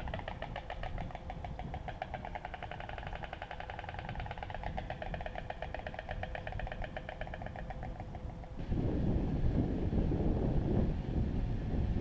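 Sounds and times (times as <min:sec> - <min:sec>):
storks clattering bills: 0:00.0 - 0:08.3.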